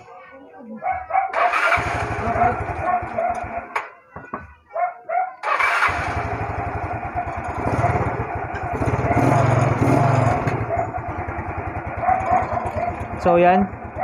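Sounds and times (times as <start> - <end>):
scooter engine starting and running: 1.3 - 3.8, 5.4 - 14.0.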